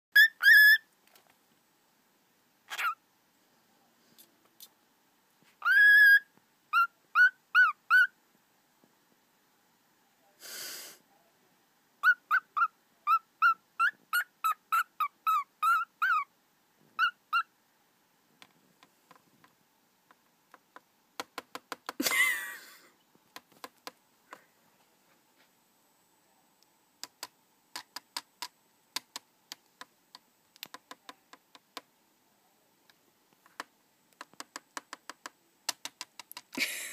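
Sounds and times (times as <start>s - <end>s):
cockatiel harsh call: 0.2s - 0.9s, 2.7s - 3.0s, 5.6s - 8.2s, 12.0s - 16.3s, 17.0s - 17.5s
cockatiel whistled chirps: 0.2s - 0.9s, 5.6s - 8.2s, 12.0s - 16.3s
beak tapping on keyboard: 20.5s - 22.0s, 27.0s - 31.9s, 33.6s - 36.6s.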